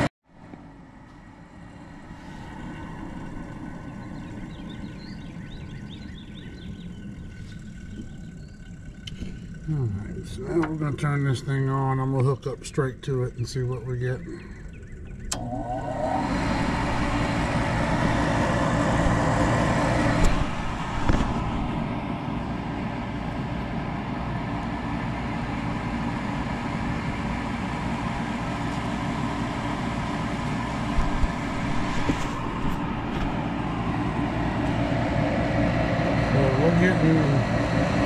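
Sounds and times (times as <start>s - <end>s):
draft inducer motor running: 0.0s - 38.0s.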